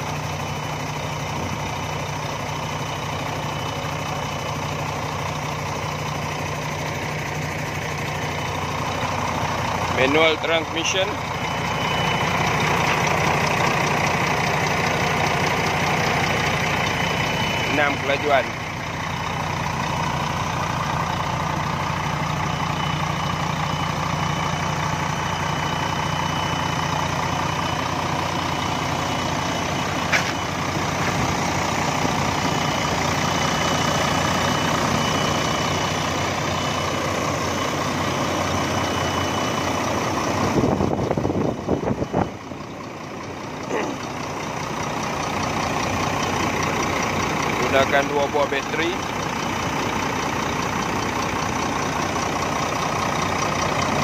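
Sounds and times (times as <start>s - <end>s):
bus engine idling: 0.0s - 54.0s.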